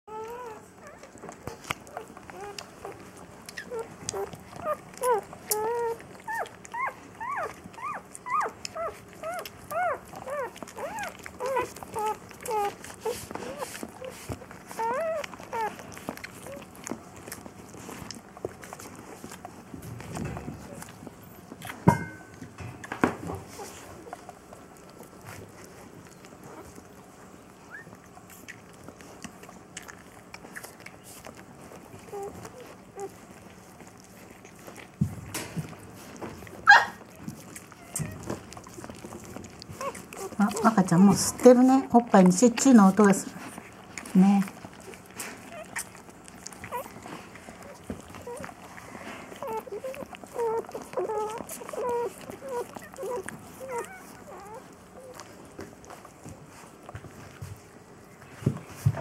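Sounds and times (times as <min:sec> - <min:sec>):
puppies squealing: 0:00.1 - 0:18.0, 0:32.0 - 0:34.8, 0:36.6 - 0:41.8, 0:42.8 - 0:55.4
puppy squeak: 0:03.5 - 0:12.8, 0:14.8 - 0:15.8, 0:49.4 - 0:55.2.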